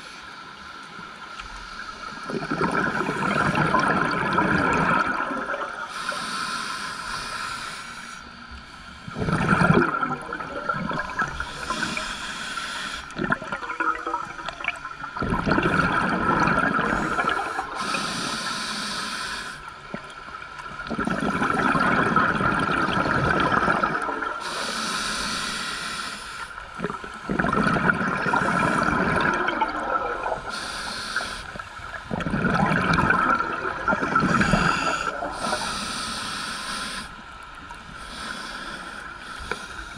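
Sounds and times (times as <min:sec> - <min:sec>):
exhaled bubbles underwater: 0:02.2 - 0:06.1, 0:09.0 - 0:12.1, 0:13.1 - 0:18.1, 0:19.8 - 0:24.5, 0:26.7 - 0:30.7, 0:31.4 - 0:35.8
regulator hissing on inhalation: 0:05.9 - 0:08.4, 0:11.1 - 0:13.1, 0:16.8 - 0:19.7, 0:24.4 - 0:26.5, 0:30.3 - 0:31.7, 0:34.2 - 0:37.2, 0:38.0 - 0:39.9.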